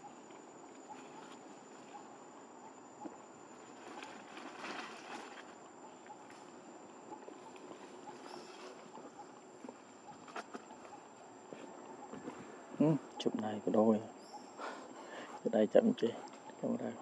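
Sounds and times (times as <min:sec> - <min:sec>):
high insect drone: 0:00.0 - 0:17.0
scuffling and rustling: 0:03.6 - 0:05.6.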